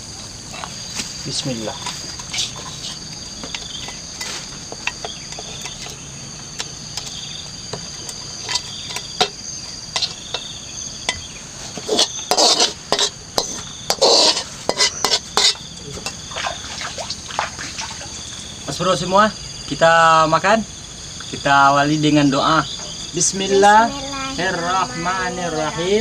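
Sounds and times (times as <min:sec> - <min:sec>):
insects whining: 0:00.0 - 0:26.0
metal spatula scraping wok: 0:01.7 - 0:06.0, 0:08.0 - 0:16.3.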